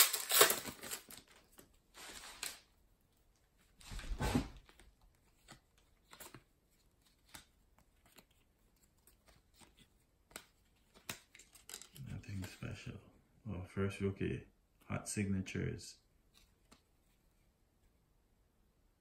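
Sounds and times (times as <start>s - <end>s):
cards being flipped through: 0.0s - 2.6s, 4.2s - 12.7s
wrapper tearing open: 0.0s - 2.6s.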